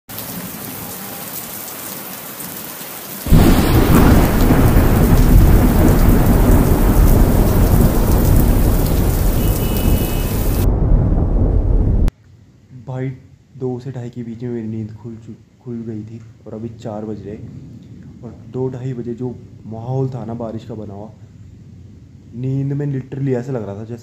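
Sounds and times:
heavy rain: 0.1 - 12.1
thunderclap and rumble: 3.3 - 12.1.

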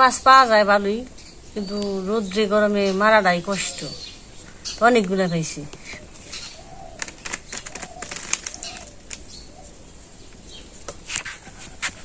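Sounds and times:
fish flapping in container: 6.9 - 9.3.

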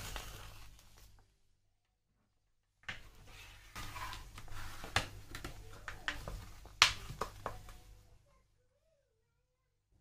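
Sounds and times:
plastic packaging crinkling: 0.0 - 1.2.

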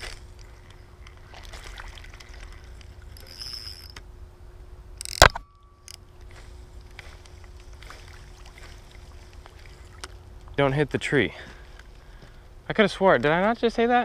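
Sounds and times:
low steady rumble: 0.0 - 14.0
spinning reel being wound: 3.1 - 4.0.

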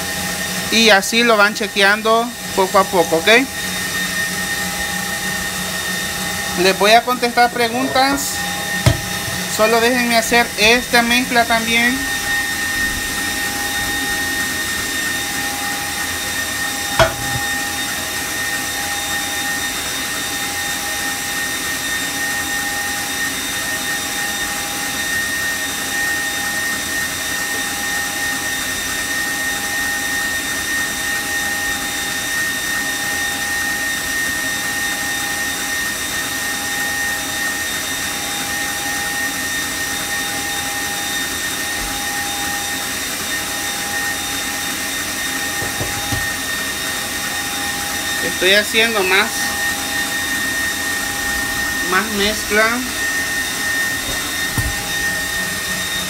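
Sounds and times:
stand mixer motor whining: 0.0 - 56.0.

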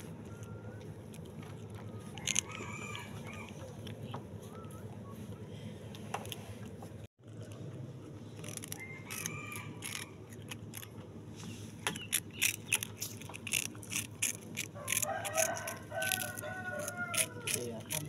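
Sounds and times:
cat crunching wafer: 0.8 - 4.1, 7.2 - 11.2, 12.0 - 18.0.

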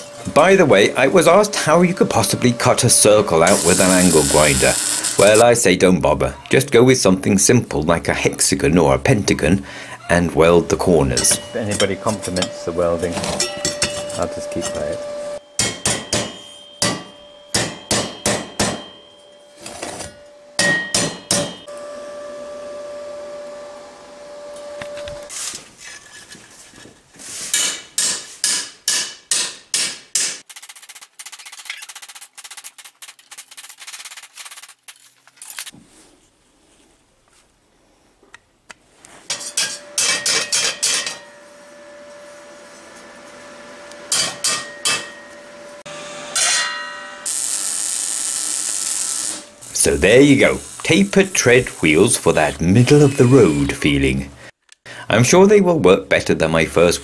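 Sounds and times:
steel ringing: 0.0 - 5.5, 11.1 - 23.3, 39.3 - 42.3, 44.1 - 48.2
hammer striking steel: 11.2 - 14.6, 15.4 - 21.7, 27.6 - 30.4, 39.3 - 41.5, 44.1 - 45.5, 46.3 - 47.3.

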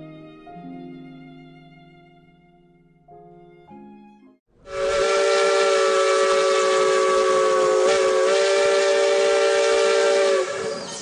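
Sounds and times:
steam locomotive whistle: 4.6 - 11.0
steam hissing: 4.7 - 11.0.

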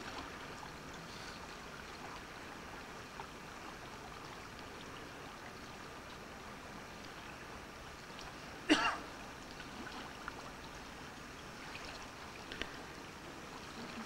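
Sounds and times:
small river flowing: 0.0 - 14.0
person coughing: 8.7 - 9.0.

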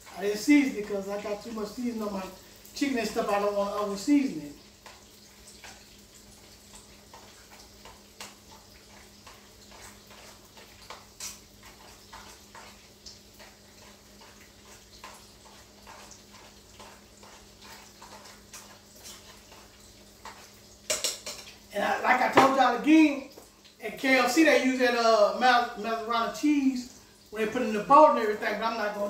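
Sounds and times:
kitchen clicks and taps: 20.2 - 21.6, 22.3 - 22.6.

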